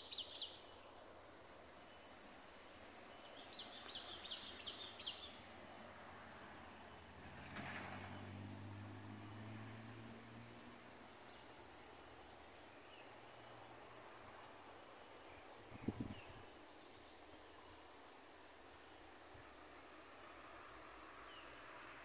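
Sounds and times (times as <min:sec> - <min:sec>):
high-pitched insect chorus: 0:00.0 - 0:22.0.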